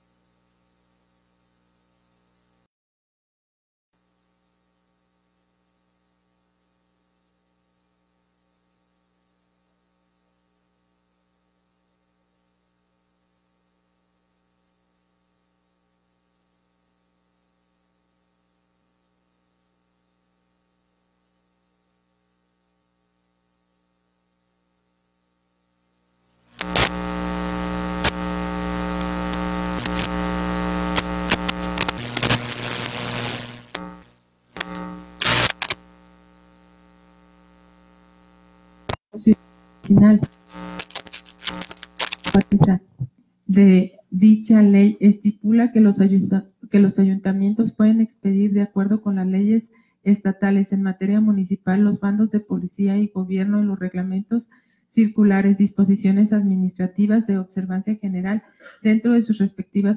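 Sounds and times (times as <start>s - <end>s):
faint electrical hum: 0.0s - 2.7s, 4.0s - 59.9s
loud electrical buzz with crackling: 26.2s - 42.7s.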